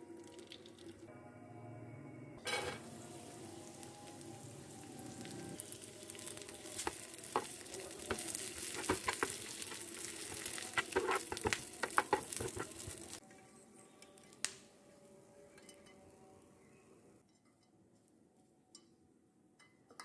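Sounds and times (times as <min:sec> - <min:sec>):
nuts and seeds sizzling in pan: 0:02.5 - 0:13.2
pieces clicking against pan: 0:06.8 - 0:13.2.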